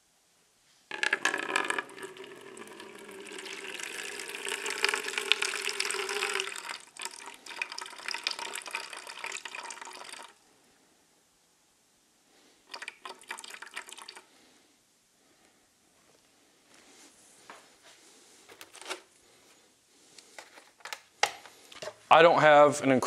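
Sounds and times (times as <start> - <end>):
water pouring into container: 0.9 - 10.4, 12.7 - 14.3.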